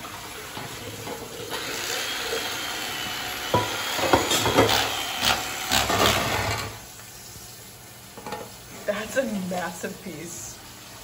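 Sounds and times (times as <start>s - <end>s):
electric carving knife buzzing: 1.6s - 6.8s.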